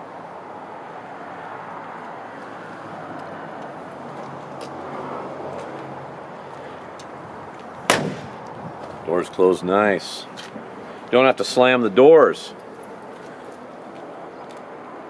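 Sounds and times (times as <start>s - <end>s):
distant traffic: 0.0s - 15.0s.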